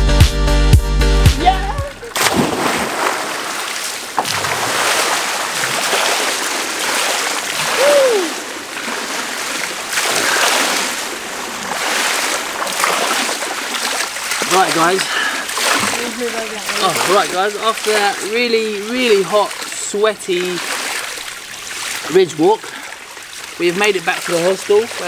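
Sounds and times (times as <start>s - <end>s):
person jumping into pool splash: 1.4s - 17.3s
pool water sloshing and lapping: 1.9s - 25.0s.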